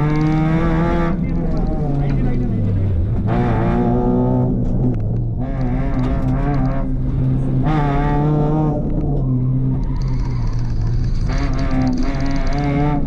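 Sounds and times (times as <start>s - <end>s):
car engine revving hard: 3.2s - 13.0s.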